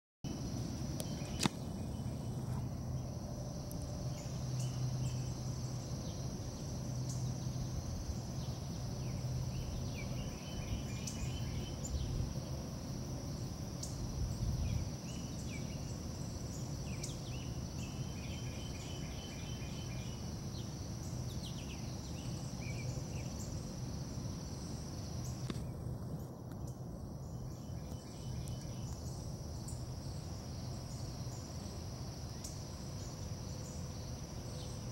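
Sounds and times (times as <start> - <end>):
insect chirping trills: 0.3 - 34.9
insects droning: 0.3 - 34.9
low steady hum: 0.3 - 34.9
sharp click: 1.0 - 1.6.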